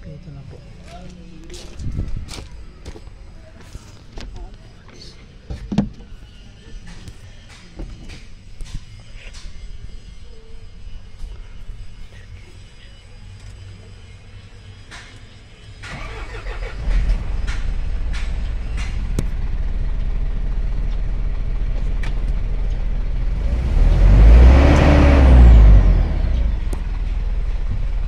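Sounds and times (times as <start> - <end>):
diesel engine idling and revving: 15.6 - 28.0
diesel engine cranking and starting: 15.7 - 28.0.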